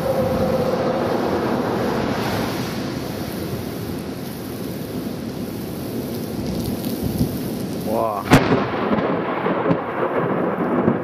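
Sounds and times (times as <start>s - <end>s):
rolling thunder: 0.0s - 4.2s, 8.2s - 11.0s
wind on microphone: 0.0s - 9.0s.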